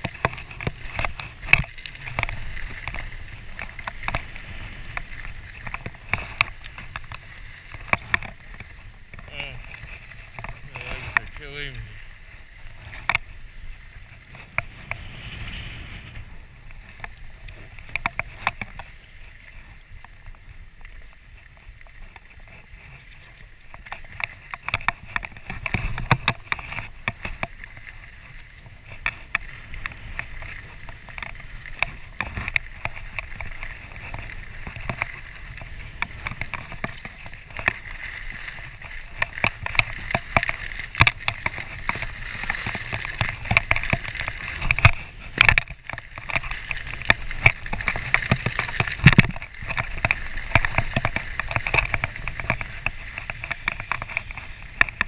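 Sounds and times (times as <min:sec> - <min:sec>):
sharp clicks and rattles: 0:00.0 - 0:12.0, 0:16.8 - 0:19.0, 0:21.6 - 0:55.0
skis scraping over snow: 0:00.0 - 0:55.0
wind rushing on microphone: 0:07.8 - 0:19.5.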